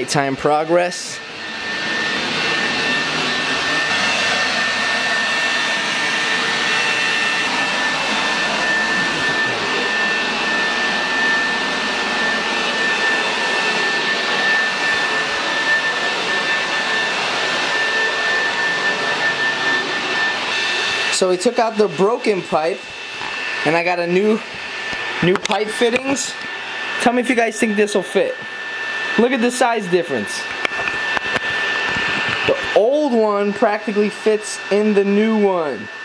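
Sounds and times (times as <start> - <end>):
electric blower motor rushing: 0.0 - 36.0.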